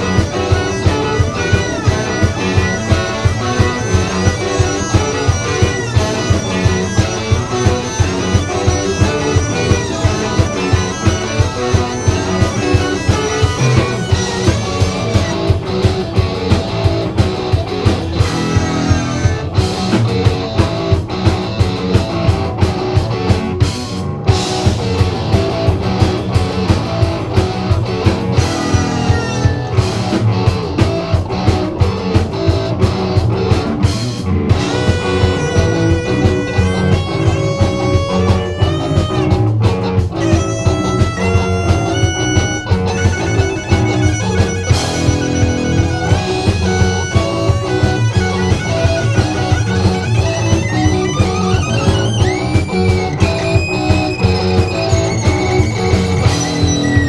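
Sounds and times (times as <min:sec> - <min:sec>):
wavering lead melody: 0:00.0 - 0:21.8, 0:23.6 - 0:57.0
drum kit steady beat: 0:00.0 - 0:57.0
electric guitar chords: 0:00.0 - 0:57.0.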